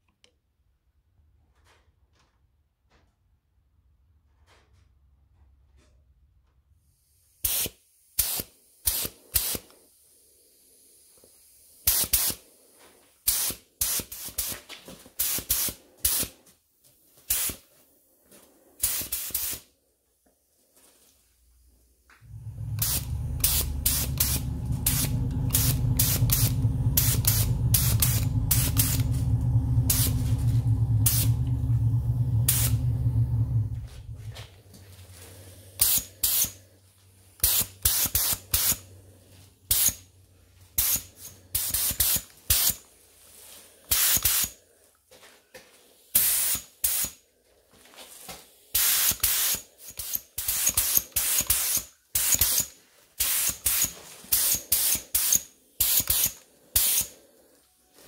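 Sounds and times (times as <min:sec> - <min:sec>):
paint spray hissing bursts: 0:07.2 - 0:09.7, 0:10.4 - 0:12.5, 0:13.2 - 0:16.4, 0:17.2 - 0:17.6, 0:18.8 - 0:19.7, 0:22.2 - 0:32.8, 0:35.8 - 0:36.6, 0:37.4 - 0:38.9, 0:39.7 - 0:40.1, 0:40.8 - 0:42.8, 0:43.9 - 0:44.6, 0:46.1 - 0:47.2, 0:48.7 - 0:57.2
motor humming: 0:22.2 - 0:35.2.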